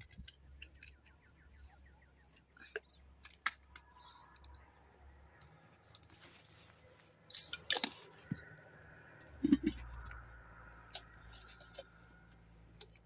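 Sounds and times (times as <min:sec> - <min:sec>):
objects clicking and clinking: 0:07.3 - 0:08.6.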